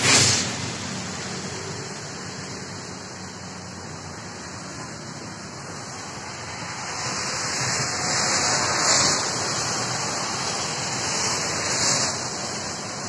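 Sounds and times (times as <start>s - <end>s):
rainwater rushing in a concrete drain: 0.0s - 13.0s.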